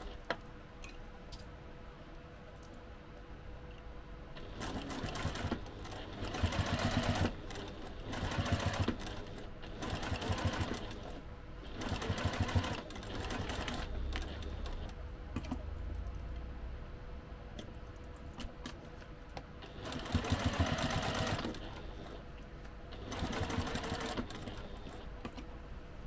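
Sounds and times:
sewing machine stitching fabric: 0:04.4 - 0:15.6, 0:19.6 - 0:22.3, 0:22.9 - 0:25.4.

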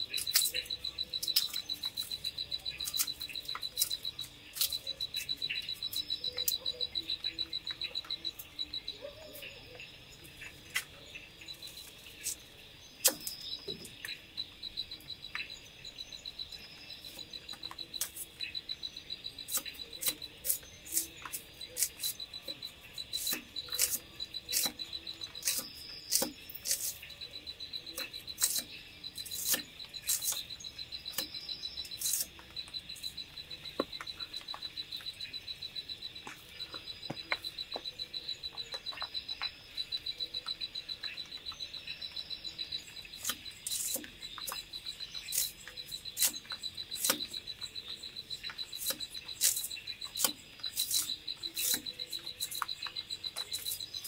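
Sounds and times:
night insects chirping: 0:00.0 - 0:54.0
knife cutting on wood: 0:23.2 - 0:24.8, 0:25.4 - 0:27.0, 0:28.4 - 0:30.4, 0:32.0 - 0:32.3.

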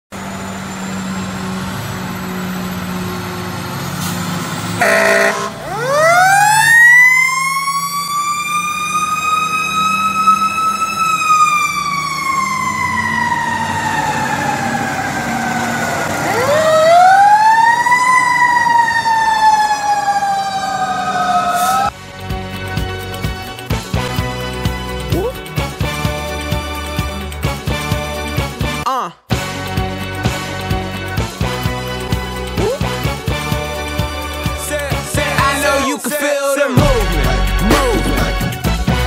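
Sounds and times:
fire truck siren wailing: 0:00.1 - 0:22.0, 0:30.3 - 0:38.7
truck engine rumble: 0:00.1 - 0:28.8, 0:29.4 - 0:36.0
short loud horn blast: 0:04.8 - 0:05.7.

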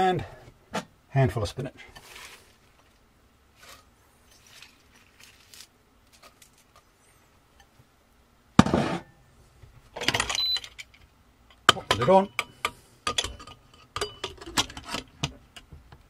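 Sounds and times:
leaves dropped into metal pot: 0:03.6 - 0:06.8.

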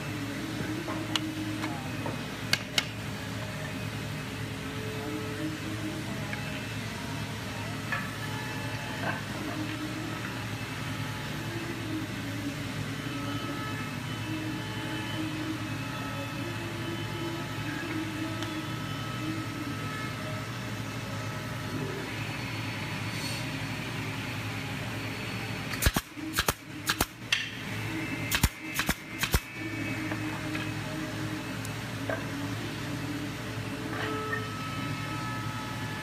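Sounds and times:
steady mechanical hum: 0:00.0 - 0:36.0
nail gun firing: 0:25.8 - 0:27.2, 0:28.3 - 0:29.5.

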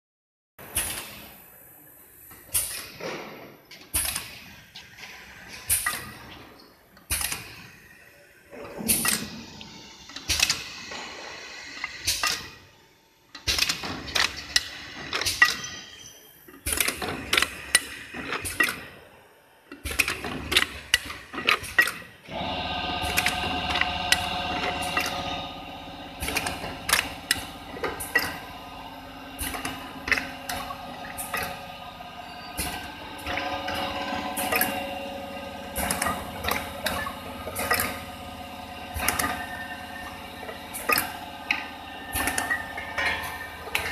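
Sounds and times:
machine clicking and clacking: 0:10.1 - 0:11.0, 0:11.6 - 0:12.6, 0:13.4 - 0:15.8, 0:16.6 - 0:19.0, 0:19.7 - 0:28.6, 0:29.3 - 0:43.9
steady machine hum: 0:22.3 - 0:43.9.

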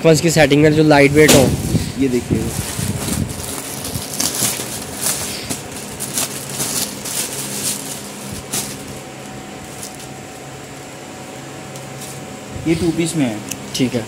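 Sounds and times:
steady hum: 0:00.0 - 0:14.0
fabric rustling and crinkling: 0:02.3 - 0:10.6.

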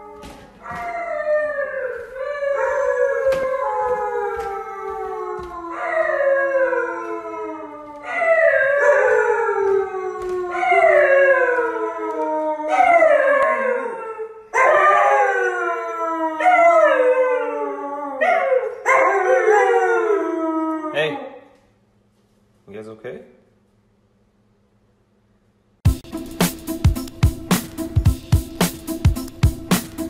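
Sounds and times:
husky howling: 0:00.0 - 0:21.4.

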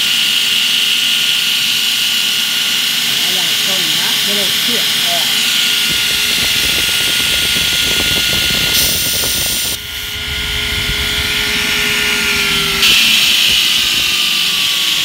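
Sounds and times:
belt grinder grinding steel: 0:00.7 - 0:09.8.

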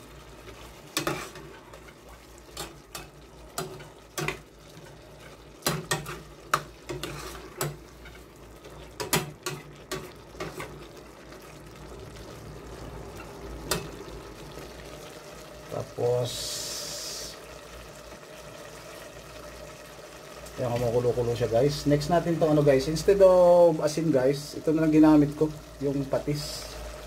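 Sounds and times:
chicken sizzling in oil: 0:00.0 - 0:27.0
metal ladle scraping a pot: 0:00.9 - 0:03.0, 0:06.8 - 0:08.4.

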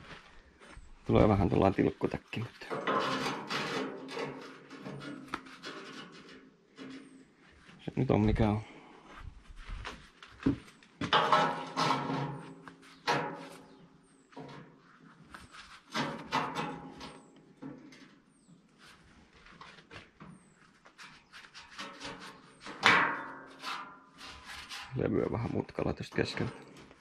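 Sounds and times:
metal clanging on steel tube: 0:11.0 - 0:13.8.

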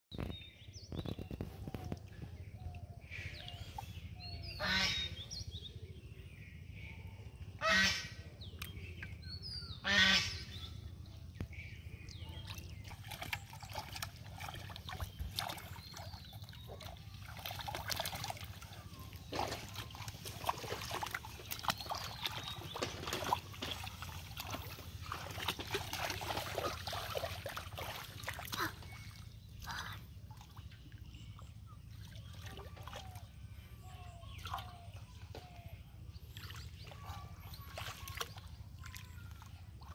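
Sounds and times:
waterfowl calling: 0:04.5 - 0:05.3, 0:07.6 - 0:08.2, 0:09.7 - 0:10.7
splashing in muddy water: 0:07.7 - 0:39.9.

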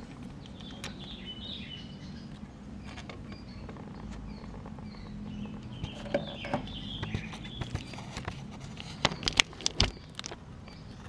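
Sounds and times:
birds chirping: 0:00.0 - 0:11.0
low steady hum: 0:00.0 - 0:11.0
sharp clicks and knocks: 0:02.3 - 0:10.9.

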